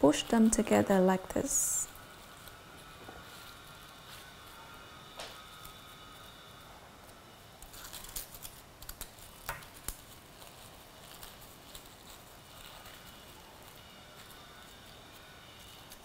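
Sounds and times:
paper crinkling and ticking: 0:00.0 - 0:16.0.

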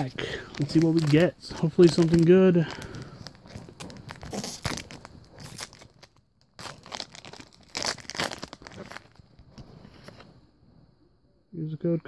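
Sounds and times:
cards being handled: 0:00.0 - 0:04.6
foil wrapper crinkling and tearing: 0:00.0 - 0:09.4.

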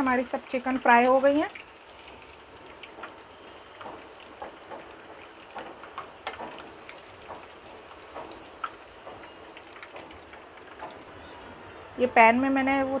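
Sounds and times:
chicken frying in oil: 0:00.0 - 0:11.1
oil crackling and popping: 0:00.0 - 0:11.1.

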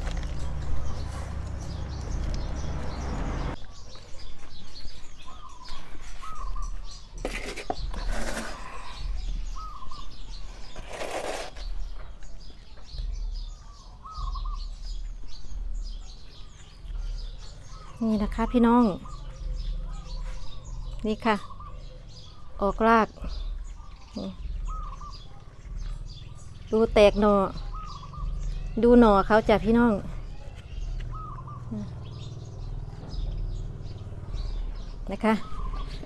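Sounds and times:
small bird chirping: 0:00.0 - 0:36.0
plastic pot scraping potting mix: 0:07.2 - 0:09.0, 0:10.6 - 0:12.0.

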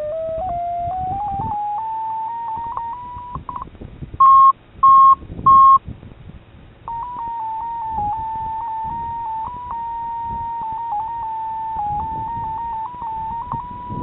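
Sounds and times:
electronic tone rising in pitch: 0:00.0 - 0:03.6, 0:06.9 - 0:14.0
short loud beeps: 0:01.2 - 0:05.8, 0:06.9 - 0:14.0.

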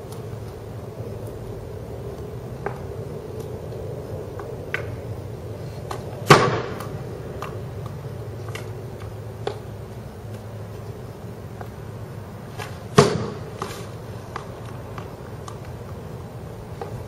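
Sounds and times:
puck shot crack: 0:05.8 - 0:09.7, 0:12.5 - 0:15.7
hockey stick tapping puck: 0:05.9 - 0:09.7.

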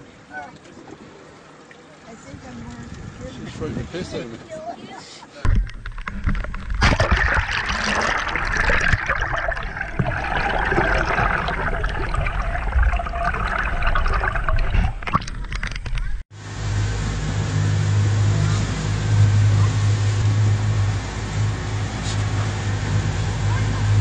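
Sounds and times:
water knocking against camera housing: 0:05.5 - 0:07.1
water rushing and gurgling: 0:05.5 - 0:24.0.

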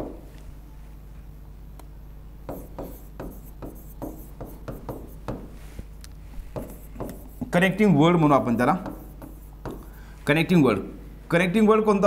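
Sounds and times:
steady low hum: 0:00.0 - 0:12.0
pen strokes on paper: 0:02.5 - 0:05.8, 0:06.4 - 0:07.5, 0:08.8 - 0:09.9.

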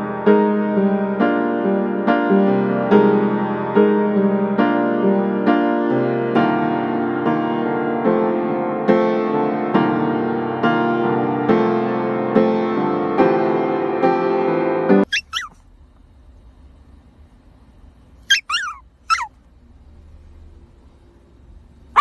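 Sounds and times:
piano chords: 0:00.0 - 0:15.1
animal high-pitched cries: 0:15.0 - 0:15.6, 0:18.3 - 0:19.3.

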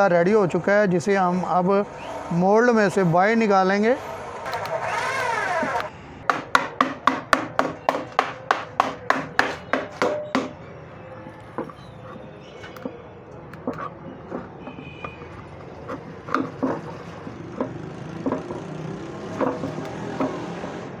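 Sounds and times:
rapid knocking: 0:15.8 - 0:18.7.

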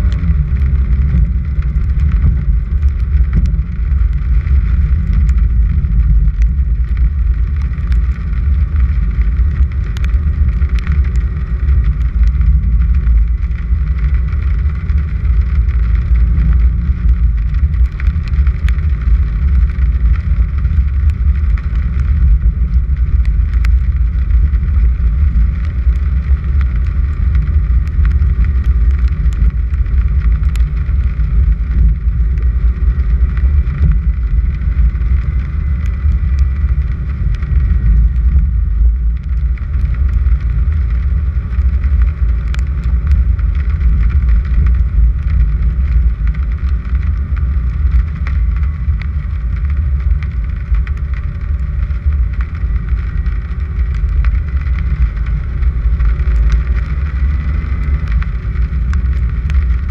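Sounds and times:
car driving on gravel: 0:00.0 - 0:59.9
small ticks: 0:00.0 - 0:59.9.

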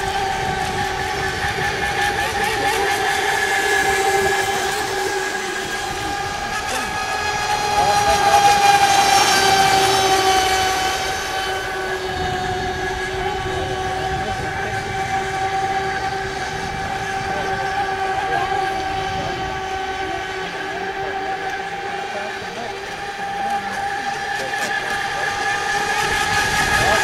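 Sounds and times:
model speedboat motors whining: 0:00.0 - 0:27.0.

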